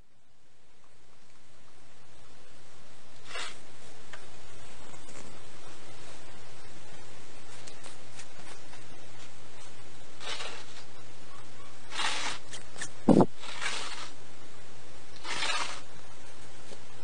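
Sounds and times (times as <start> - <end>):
cats hissing: 10.2 - 14.2.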